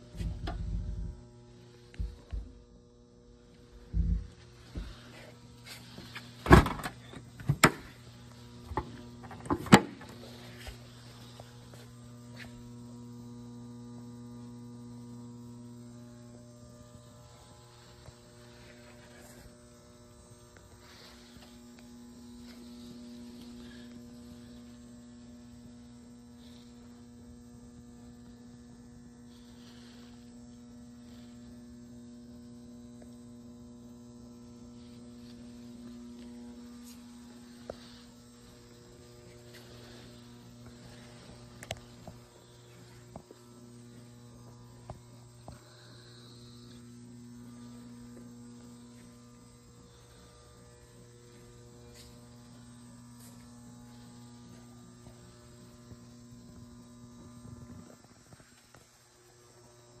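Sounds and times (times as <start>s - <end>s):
electrical mains hum: 0.0s - 60.0s.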